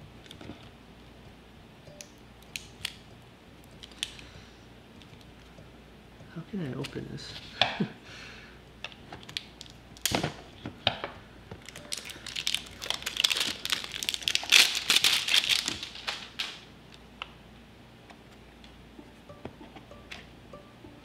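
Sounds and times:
plastic packaging crinkling: 3.6 - 4.3, 11.6 - 16.7.

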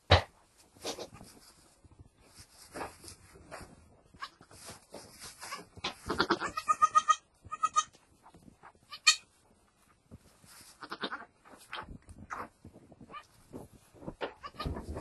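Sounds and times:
goat bleating: 5.5 - 8.0, 8.9 - 9.3, 10.8 - 11.3, 14.4 - 14.8.

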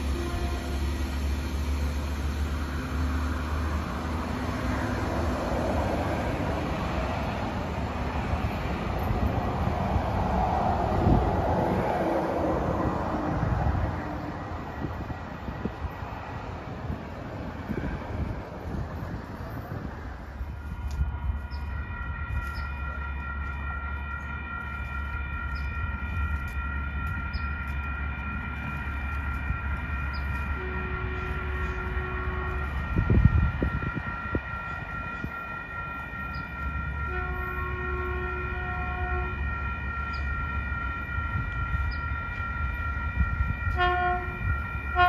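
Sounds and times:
train horn blasts: 0.0 - 1.8, 11.0 - 15.8, 20.4 - 45.0
crossing warning bells ringing: 0.0 - 45.0.

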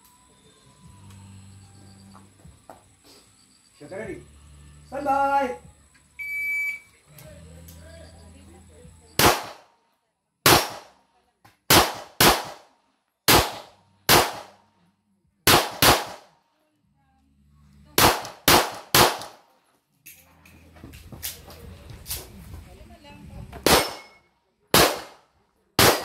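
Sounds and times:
pistol shots: 9.2 - 9.7, 10.4 - 11.0, 11.7 - 12.7, 13.3 - 14.6, 15.5 - 16.3, 18.0 - 19.4, 23.6 - 25.2, 25.8 - 26.0.

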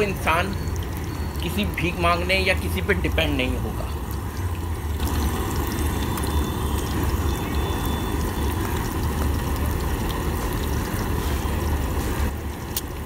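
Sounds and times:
egg sizzling in oil: 0.0 - 13.0.

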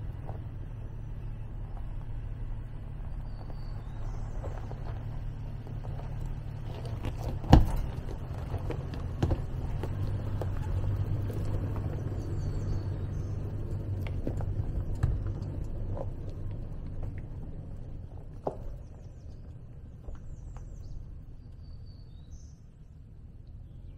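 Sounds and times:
engine rumbling at low speed: 0.0 - 23.9
tyres knocking over rocks: 3.4 - 12.4, 13.2 - 19.1.

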